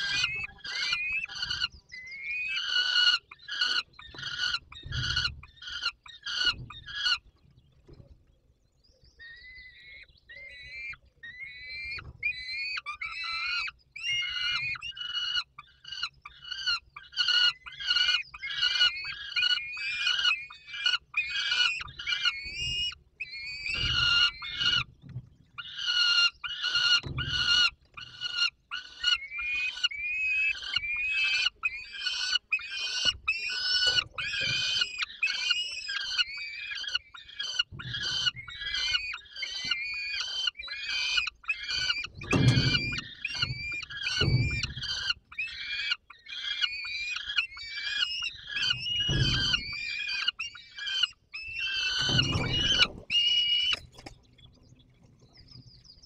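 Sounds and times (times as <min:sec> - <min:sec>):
falcons wailing calls: 0:00.0 - 0:07.4, 0:09.2 - 0:25.0, 0:25.6 - 0:54.1
dull knocks: 0:42.1 - 0:44.9.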